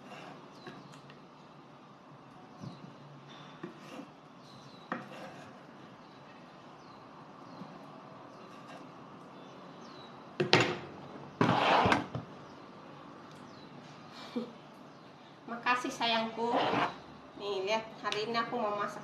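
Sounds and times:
knife scraping wooden board: 3.6s - 4.1s, 4.9s - 5.6s, 11.4s - 12.2s, 16.4s - 17.0s.

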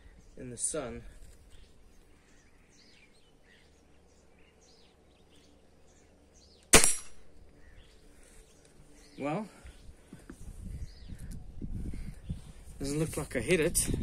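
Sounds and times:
air rifle shot: 6.7s - 7.3s
faint bird chirps: 7.5s - 12.7s.

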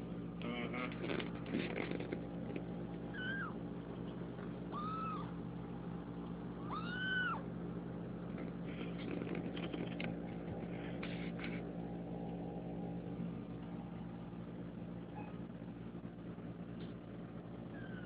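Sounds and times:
steady low hum: 0.0s - 18.0s
kitten mewing: 3.1s - 3.6s, 4.7s - 5.4s, 6.6s - 7.5s
soft rustling clicks: 8.3s - 11.7s.

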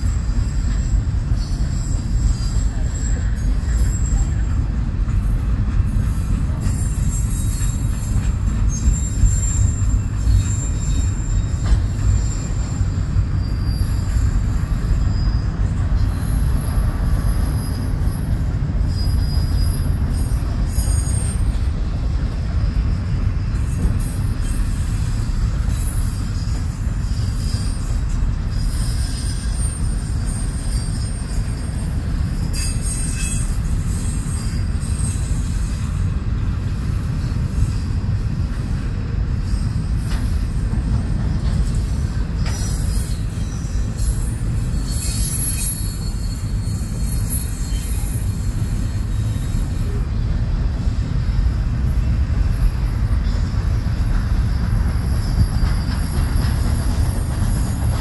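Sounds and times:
high-pitched wheel squeals: 0.0s - 4.6s, 5.9s - 58.0s
train wheels rumbling on rails: 0.0s - 58.0s.

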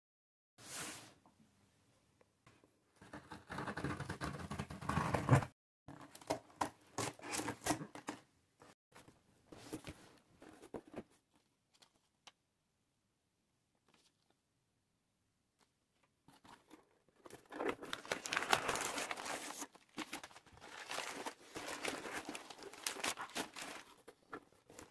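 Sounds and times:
paper handled: 16.3s - 24.9s
cardboard scrapes and crackles: 17.3s - 24.9s.

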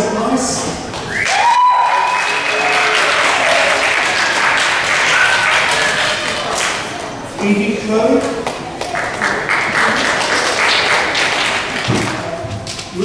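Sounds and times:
audience applauding: 1.1s - 7.0s, 8.8s - 12.4s.

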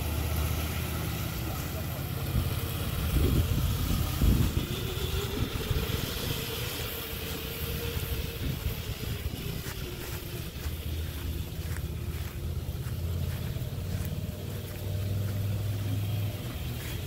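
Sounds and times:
electric motor whine: 0.0s - 17.0s.

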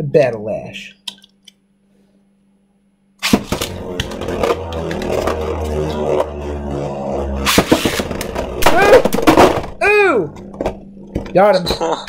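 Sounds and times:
spinning tops whirring: 3.2s - 11.2s.

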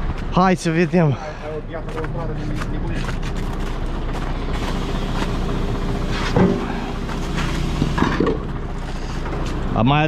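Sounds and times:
truck engine running: 0.0s - 10.0s
clunk: 6.2s - 8.6s.

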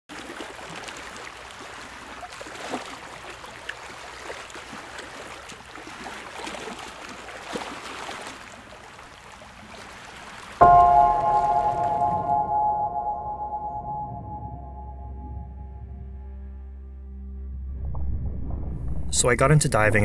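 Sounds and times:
water lapping and splashing: 0.1s - 14.4s
sustained musical chord: 10.6s - 17.7s.

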